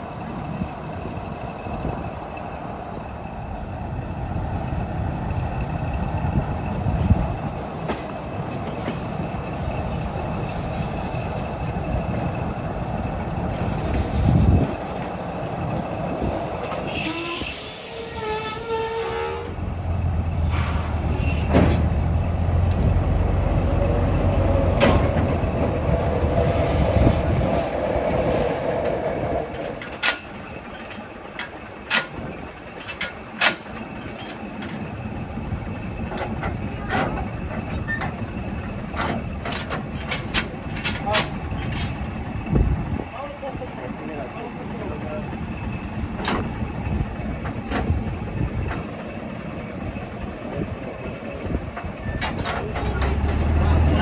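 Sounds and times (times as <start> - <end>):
train rumbling on rails: 0.0 - 54.0
high-pitched squeal: 16.6 - 19.7, 20.4 - 22.3.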